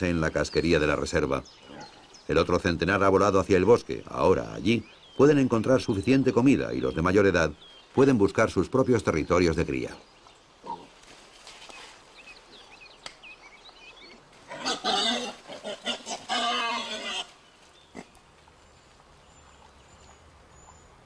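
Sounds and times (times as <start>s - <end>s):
harsh animal calls: 14.5s - 18.1s.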